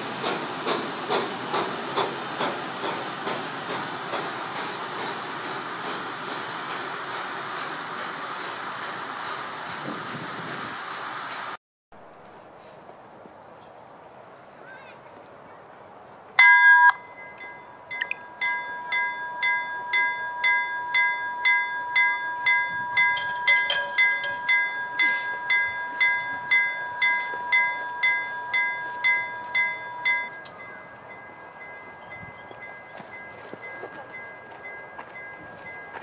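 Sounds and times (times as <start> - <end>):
level crossing bell ringing: 16.4 - 36.0.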